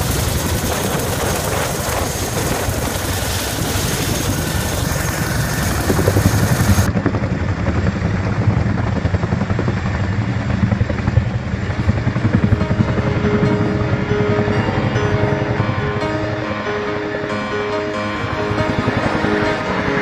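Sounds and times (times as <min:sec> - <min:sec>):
helicopter rotors beating: 0:00.0 - 0:20.0
music: 0:12.1 - 0:20.0.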